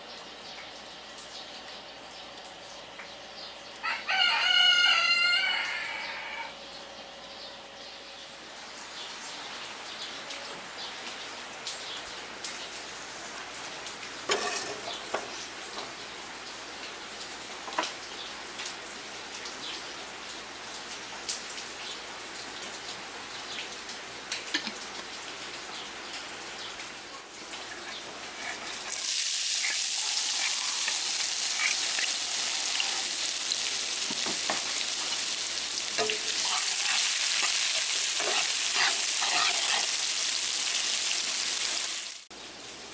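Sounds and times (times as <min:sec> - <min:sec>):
oil hissing and crackling in a wok: 0:11.6 - 0:42.9
onions sizzling in hot oil: 0:14.2 - 0:15.6, 0:27.6 - 0:42.3
metal spatula scraping a wok: 0:14.3 - 0:14.9, 0:36.0 - 0:40.2.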